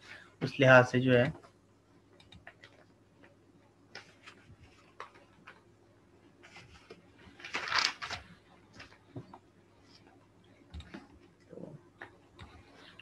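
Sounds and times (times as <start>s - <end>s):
computer mouse clicks: 2.2s - 2.8s.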